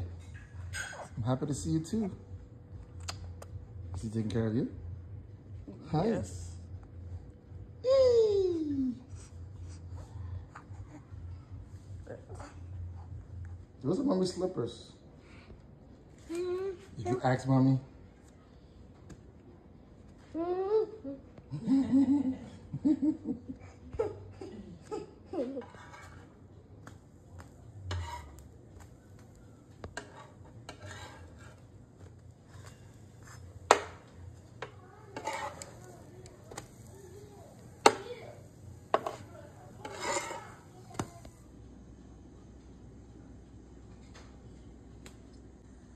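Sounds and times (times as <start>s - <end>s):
child laughing and babbling: 7.8s - 9.1s, 20.4s - 22.5s, 23.4s - 25.7s.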